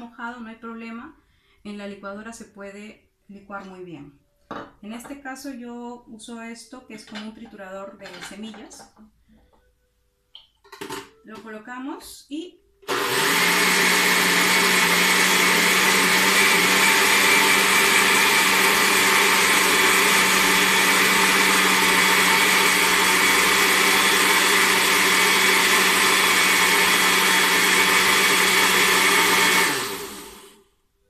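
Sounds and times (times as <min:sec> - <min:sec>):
electric grinder motor running: 0:12.9 - 0:30.5.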